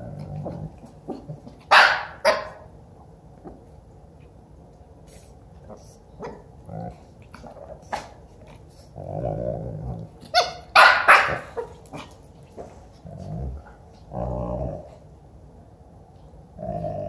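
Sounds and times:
dog growling: 0.0s - 1.5s, 6.6s - 10.4s, 11.4s - 15.1s, 16.6s - 17.0s
dog barking: 1.7s - 2.7s, 10.3s - 11.7s.

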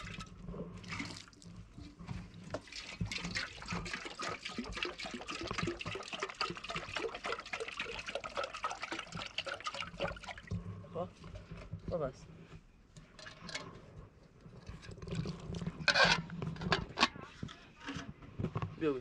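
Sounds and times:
water splashing and trickling: 0.0s - 10.6s.

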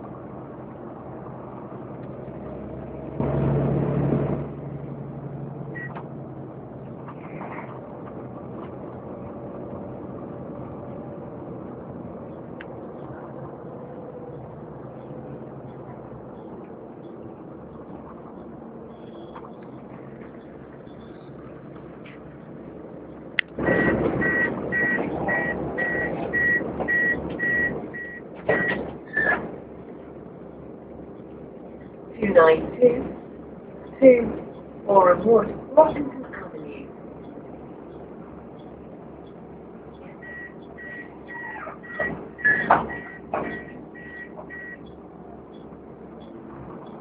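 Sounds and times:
diesel engine hum: 0.0s - 47.0s
rush of noise from bus cabin: 0.0s - 47.0s
bus door warning beeps: 5.8s - 6.1s, 23.6s - 29.4s, 40.0s - 47.0s
short high warning beeps: 40.2s - 44.8s
door mechanism clunks: 41.8s - 43.8s.

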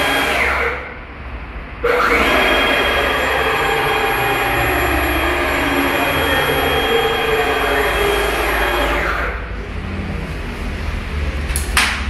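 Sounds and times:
cnc router motor whine: 0.0s - 1.0s, 1.8s - 9.8s
low machine hum: 0.0s - 11.6s.

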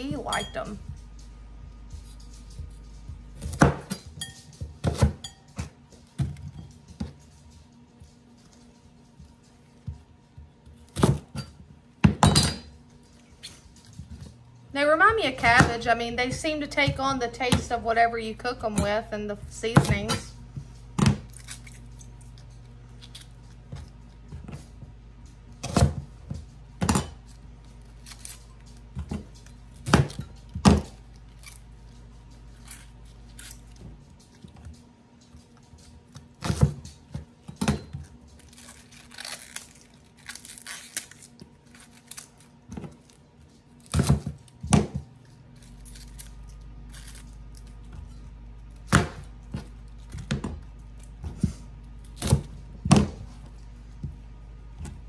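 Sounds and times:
leaves rustling being peeled: 12.8s - 55.0s.

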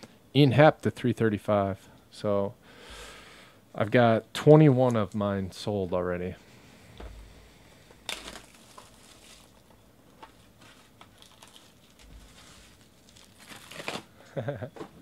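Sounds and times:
plastic wrap crinkling and tearing: 8.0s - 14.5s.

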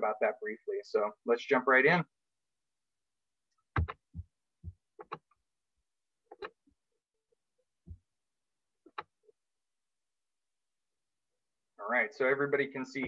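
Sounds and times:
computer clicks and taps: 3.7s - 5.4s, 6.3s - 6.6s, 8.9s - 9.2s.

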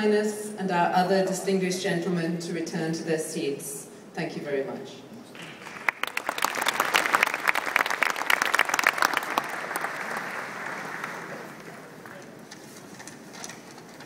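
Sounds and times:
audience applauding: 5.4s - 12.2s.

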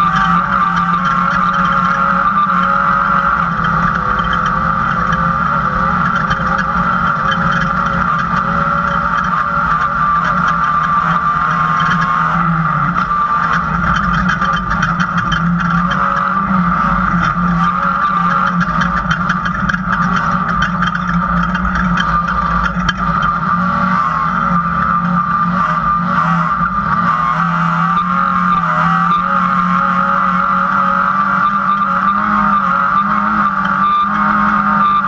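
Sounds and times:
race car engine running: 0.0s - 35.0s
rattling over rough dirt: 0.0s - 35.0s.

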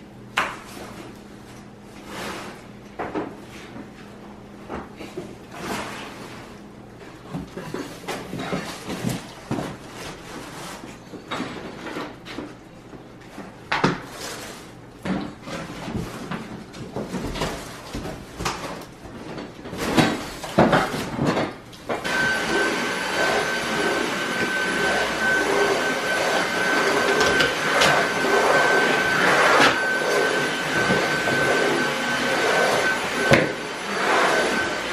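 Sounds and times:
stick vacuum whining: 19.3s - 34.9s.

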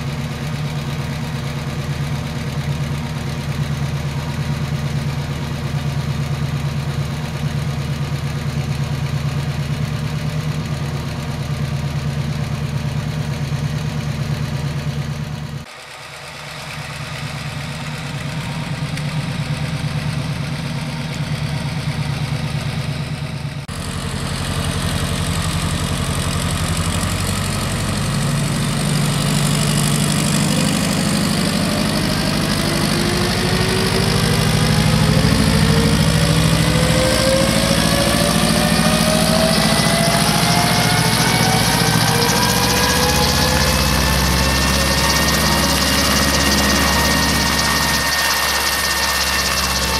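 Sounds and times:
helicopter piston engine running: 0.0s - 49.9s
helicopter rotor turning: 13.9s - 49.9s.

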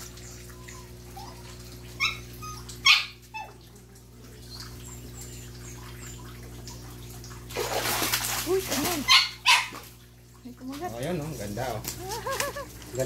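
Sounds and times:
fish splashing in water: 0.0s - 12.8s
low steady hum: 0.0s - 13.0s
dog barking: 9.1s - 9.8s.

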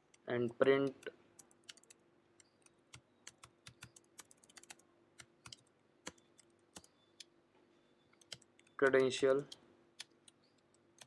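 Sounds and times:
typing on computer keyboard: 0.9s - 7.3s, 8.2s - 11.0s.

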